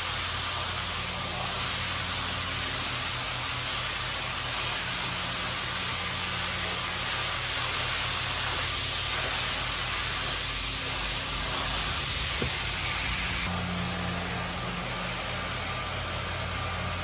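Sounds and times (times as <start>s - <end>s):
pressure washer spraying water: 0.0s - 17.0s.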